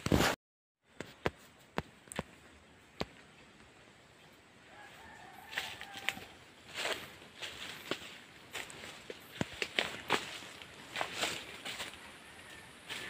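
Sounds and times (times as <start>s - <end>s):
faint rooster crowing: 4.6s - 7.0s, 11.6s - 13.0s.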